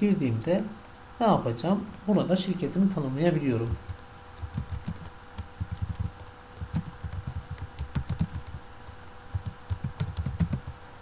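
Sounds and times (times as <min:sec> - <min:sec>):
typing on computer keyboard: 0:03.9 - 0:10.7.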